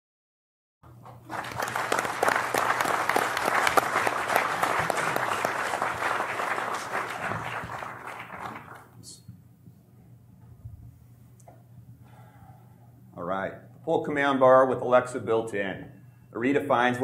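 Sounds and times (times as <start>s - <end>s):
audience applauding: 0.8s - 9.0s.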